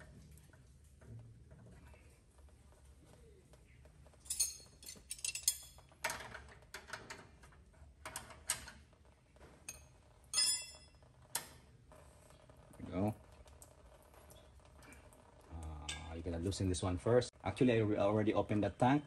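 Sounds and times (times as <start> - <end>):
metal wrenches clinking: 4.1 - 7.5, 9.6 - 11.1.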